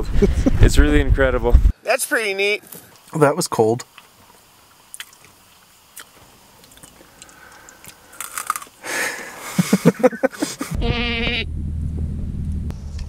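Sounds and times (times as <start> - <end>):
person chewing crunchy snack: 5.9 - 8.8.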